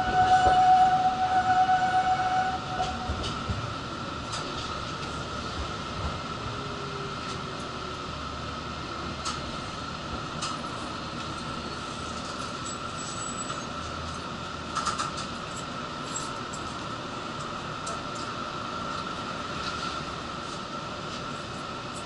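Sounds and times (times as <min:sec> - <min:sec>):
high-pitched whine: 0:00.0 - 0:03.5
streetcar rumble and hum: 0:00.0 - 0:22.0.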